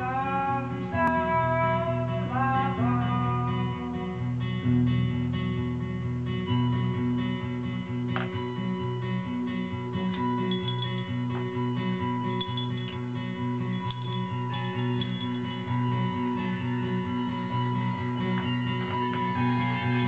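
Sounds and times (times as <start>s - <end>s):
plucked guitar-like instrument: 0.0s - 20.0s.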